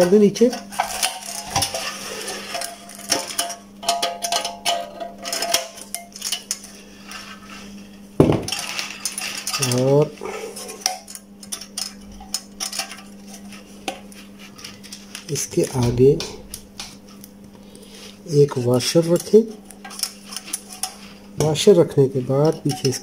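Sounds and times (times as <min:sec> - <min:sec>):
steady low hum: 0:00.0 - 0:23.0
metal and ceramic clinking: 0:00.8 - 0:06.6.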